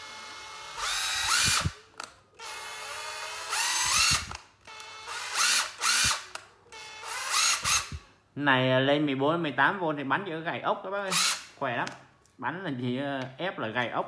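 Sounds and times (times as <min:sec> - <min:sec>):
impact driver motor whining: 0:00.0 - 0:08.0, 0:11.1 - 0:11.5.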